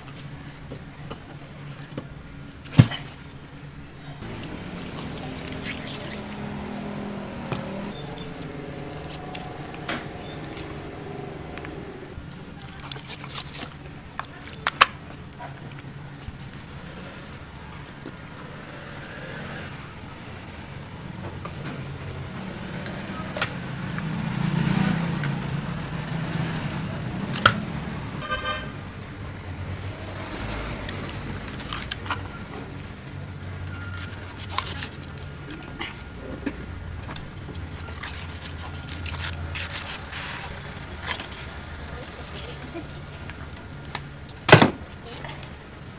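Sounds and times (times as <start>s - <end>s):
knife cutting and scraping skin: 4.3s - 11.8s, 12.5s - 14.7s, 16.3s - 17.5s, 21.2s - 23.6s, 29.7s - 32.4s, 33.7s - 35.6s, 37.2s - 43.3s
knife slicing tough skin: 33.9s - 35.1s.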